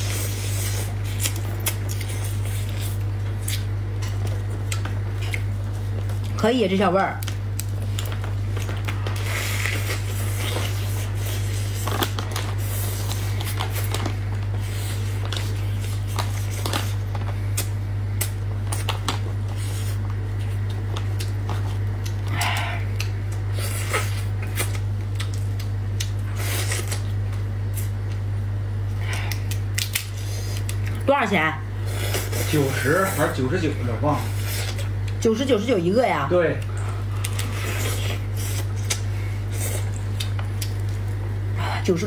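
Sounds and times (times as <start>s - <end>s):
steady low hum: 0.0s - 42.0s
crab shell cracking: 29.3s - 30.9s.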